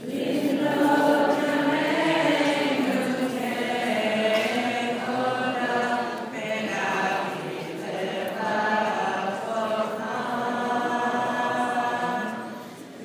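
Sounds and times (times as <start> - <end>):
group of voices chanting: 0.0 - 12.5.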